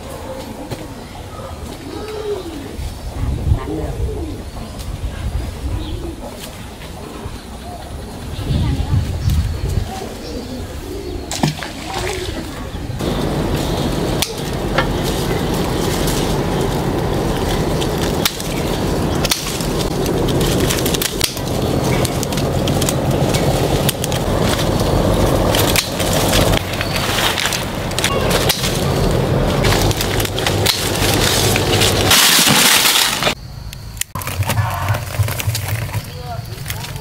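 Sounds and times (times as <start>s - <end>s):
rustling of leaves and twigs: 11.3s - 33.4s, 34.1s - 37.0s
loud rush of noise: 13.0s - 33.4s
twigs cracking and snapping: 13.0s - 33.4s.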